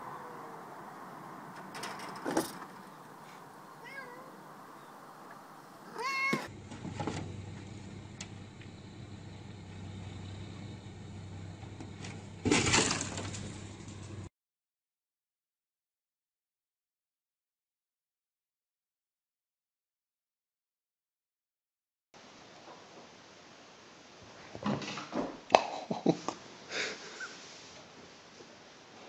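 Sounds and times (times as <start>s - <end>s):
cat meowing: 0.0s - 0.6s, 3.7s - 4.4s, 5.8s - 6.5s
cat landing on car clatter: 12.4s - 13.6s.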